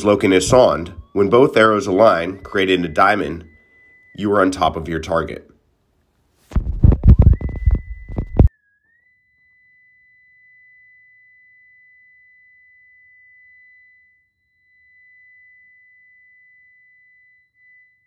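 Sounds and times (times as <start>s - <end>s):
high electronic tone: 0.0s - 5.4s, 6.5s - 8.5s.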